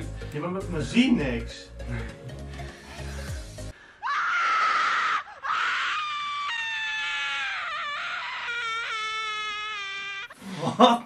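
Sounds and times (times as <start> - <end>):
loud shrill scream: 4.0 - 10.4.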